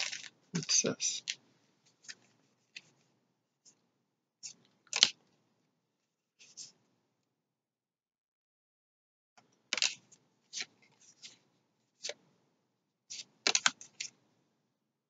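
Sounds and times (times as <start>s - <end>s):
cards clicking and rustling: 0.0s - 3.0s, 4.5s - 5.2s, 9.7s - 12.3s, 13.1s - 14.2s.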